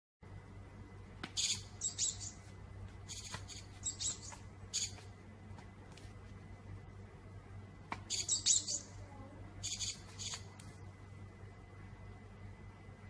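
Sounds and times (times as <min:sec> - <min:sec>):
high bird-like chirps: 0:01.3 - 0:05.1, 0:08.0 - 0:09.0, 0:09.6 - 0:10.5.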